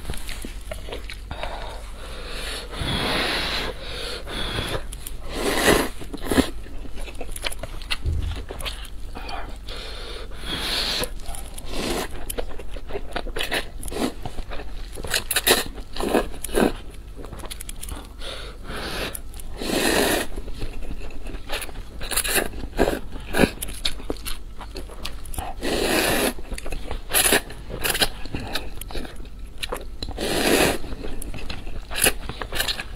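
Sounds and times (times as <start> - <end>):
chewing and mouth clicks: 0.1 - 1.8, 5.9 - 9.4, 11.0 - 18.2, 20.4 - 25.6, 26.3 - 30.2.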